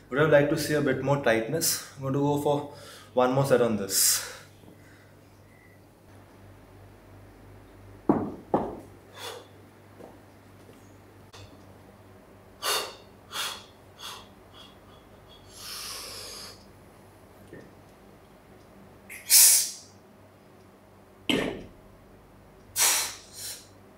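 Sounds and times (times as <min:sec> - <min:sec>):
man sniffing sharply: 0:15.5 - 0:16.6, 0:19.1 - 0:19.8, 0:22.8 - 0:23.7.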